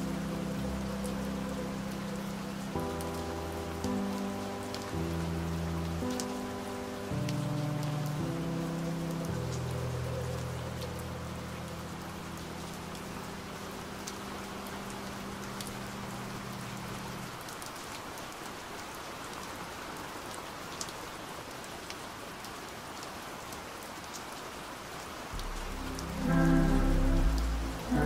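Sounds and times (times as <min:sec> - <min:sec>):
steady rain: 0:00.0 - 0:28.0
raindrop ticks: 0:01.9 - 0:18.4, 0:25.4 - 0:28.0
low held musical note: 0:25.4 - 0:28.0.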